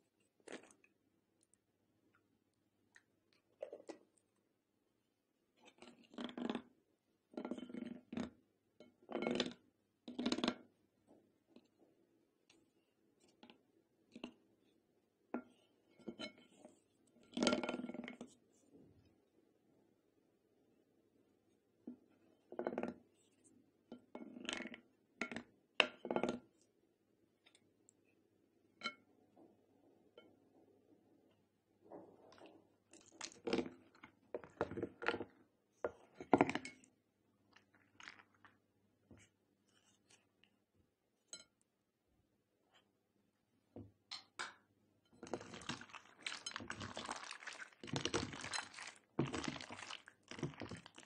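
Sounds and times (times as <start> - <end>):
spatula stirring slime in glass bowl: 0.0 - 1.0, 5.4 - 10.8, 12.5 - 18.9, 21.5 - 26.8, 28.8 - 29.1, 31.9 - 41.7, 44.1 - 51.0
plastic spoon clinking on glass: 45.2 - 51.0.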